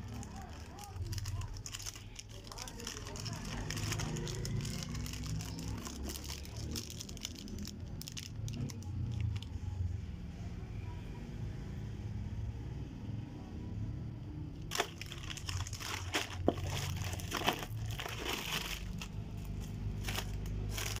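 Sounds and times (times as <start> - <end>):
wrappers crinkling: 0.0 - 9.5, 14.7 - 21.0
low steady rumble: 12.7 - 21.0.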